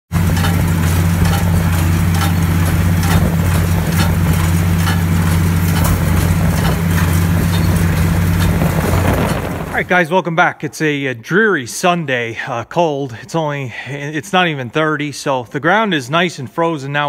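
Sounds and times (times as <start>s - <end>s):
baler knocking: 0.1s - 9.8s
tractor engine drone: 0.1s - 10.2s.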